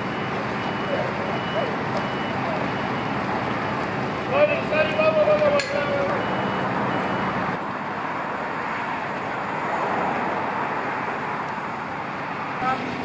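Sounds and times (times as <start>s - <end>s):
heavy diesel engines running: 0.0s - 13.0s.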